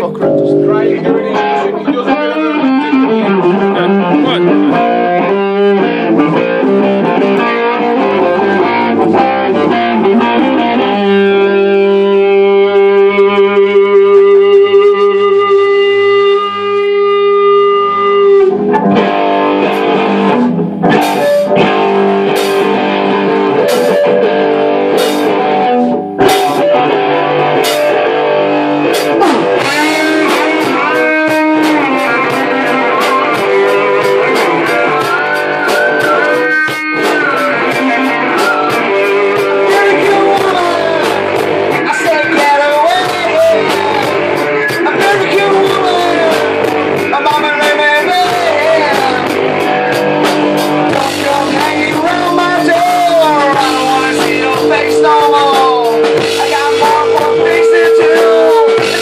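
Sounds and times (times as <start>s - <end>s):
loud electric guitar: 0.0s - 59.0s
drum hits: 18.6s - 28.2s, 28.8s - 59.0s.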